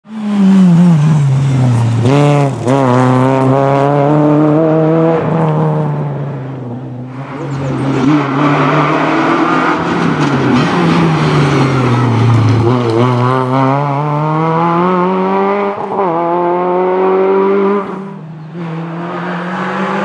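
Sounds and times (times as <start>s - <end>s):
rally car engine at high revs: 0.0s - 20.0s.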